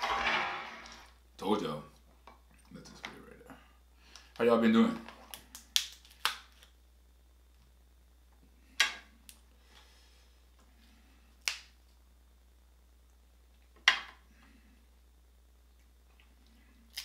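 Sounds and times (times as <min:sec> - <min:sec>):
crab shells cracking: 0:05.2 - 0:06.7.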